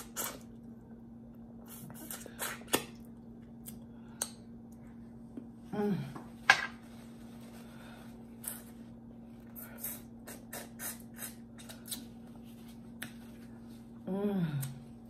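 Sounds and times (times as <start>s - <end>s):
lip smacks and chewing clicks: 10.3s - 12.1s.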